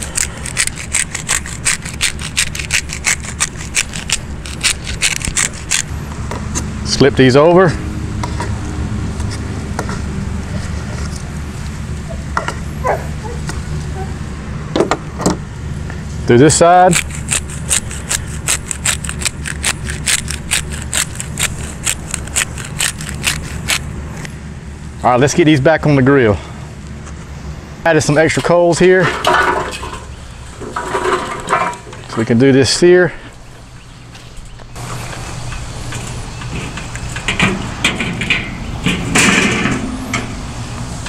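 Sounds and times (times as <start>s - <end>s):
pepper grinder rasping: 0.0s - 5.9s, 16.8s - 23.9s.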